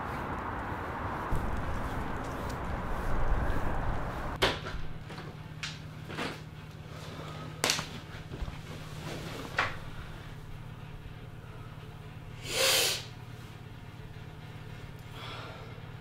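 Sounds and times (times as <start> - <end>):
street background noise: 0.0 - 6.6
steady low hum: 0.0 - 16.0.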